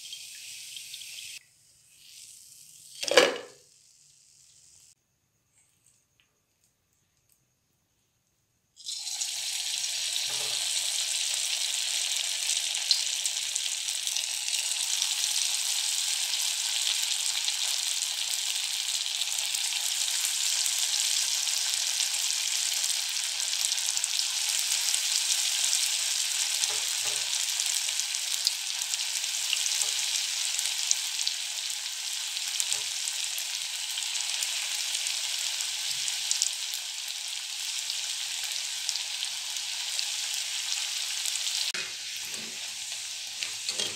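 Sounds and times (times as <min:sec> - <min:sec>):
batter sizzling in hot oil: 0:00.0 - 0:05.0, 0:08.8 - 0:43.9.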